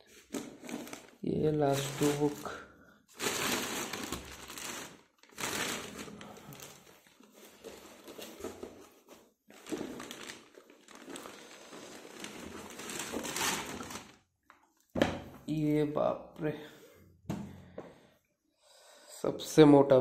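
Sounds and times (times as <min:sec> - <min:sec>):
packaging crinkling: 0:00.2 - 0:08.7, 0:09.5 - 0:14.6.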